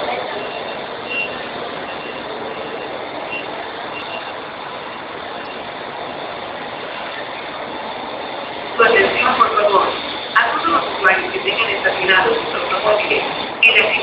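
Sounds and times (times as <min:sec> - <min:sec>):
diesel buses running: 0:00.0 - 0:14.0
faint high beep: 0:00.4 - 0:04.4.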